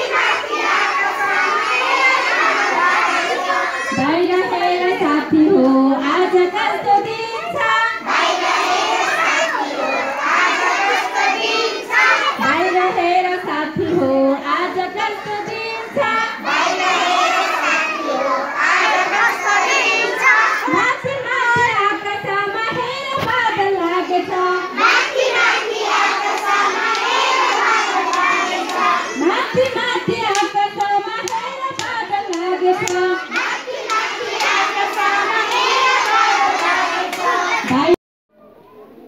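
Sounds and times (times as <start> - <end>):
children singing and shouting: 0.0 - 38.0.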